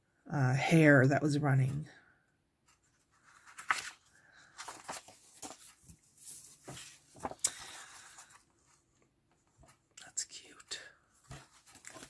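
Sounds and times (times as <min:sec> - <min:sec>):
paper rustling and sliding: 0:02.7 - 0:08.9, 0:11.2 - 0:12.0.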